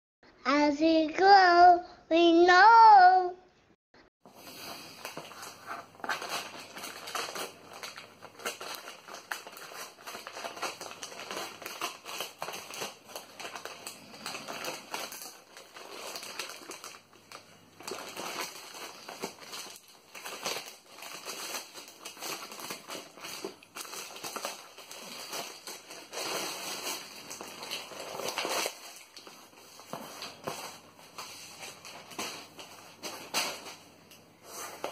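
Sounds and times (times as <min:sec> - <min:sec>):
plastic tearing: 0:04.3 - 0:33.8
plastic bag crinkling: 0:04.3 - 0:34.9
scissors cutting plastic: 0:04.8 - 0:17.0, 0:17.8 - 0:30.5.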